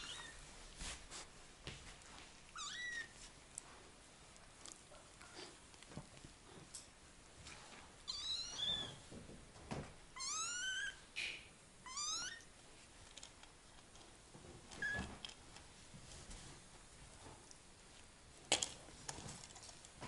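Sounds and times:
kittens meowing: 11.9 - 12.5.

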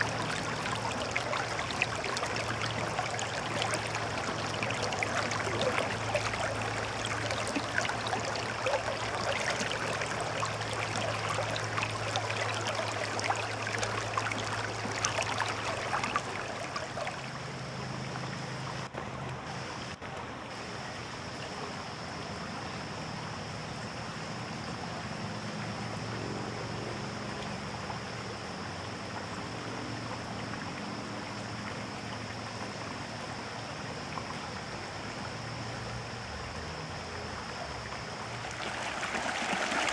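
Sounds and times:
water rushing over rocks: 0.0 - 17.5, 38.3 - 39.9
river babbling over stones: 0.0 - 17.7, 38.0 - 39.9.

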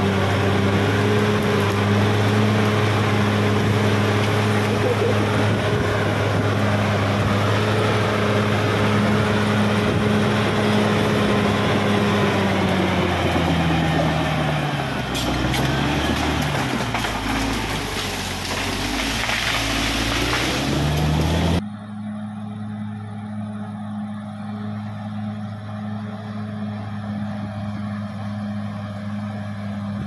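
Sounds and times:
bulldozer blade pushing soil: 0.0 - 21.6
bulldozer diesel engine running: 0.0 - 30.0.

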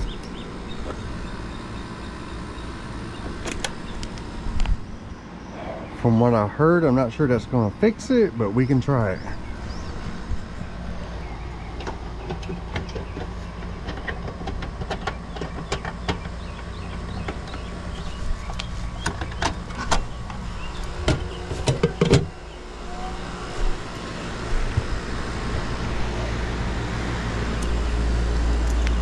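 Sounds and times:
low rumble of compressor: 0.0 - 29.0
steady low hum: 0.0 - 29.0.

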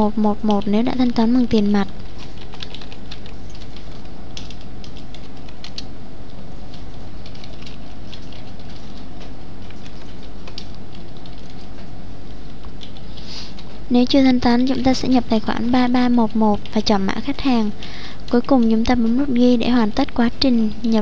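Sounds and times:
low background hum: 0.0 - 21.0
computer keyboard keystrokes: 0.4 - 5.9, 6.7 - 11.9, 12.6 - 13.7, 17.8 - 19.2.

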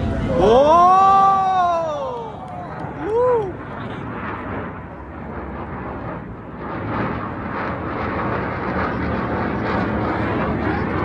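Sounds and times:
jet aircraft engine noise: 0.0 - 11.0.

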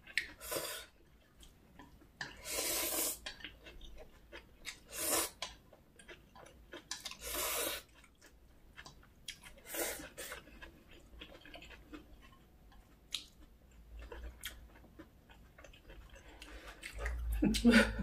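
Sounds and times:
chewing noodles: 0.0 - 18.0.

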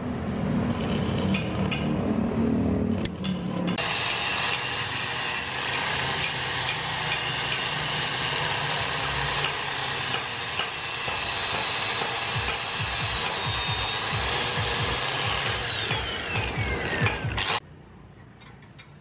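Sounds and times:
power tool whining on metal: 2.9 - 17.6.

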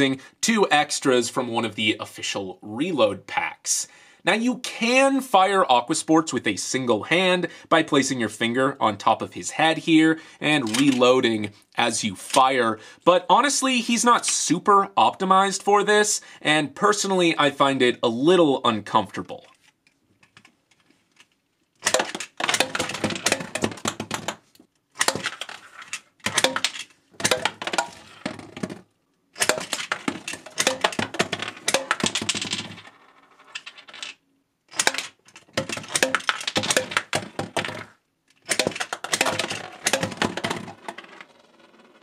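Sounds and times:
caps clacking against plastic bottles: 21.8 - 24.3, 25.0 - 25.6, 26.2 - 28.7, 29.4 - 32.4, 34.7 - 37.8, 38.4 - 40.6
toy blaster firing caps: 21.8 - 24.3, 25.0 - 25.6, 26.3 - 28.1, 29.4 - 32.5, 34.7 - 40.7
bottles tipping and rolling: 21.8 - 24.4, 25.0 - 28.8, 29.4 - 32.7, 34.7 - 40.8
caps clattering on a tabletop: 25.0 - 28.8, 29.4 - 41.3.

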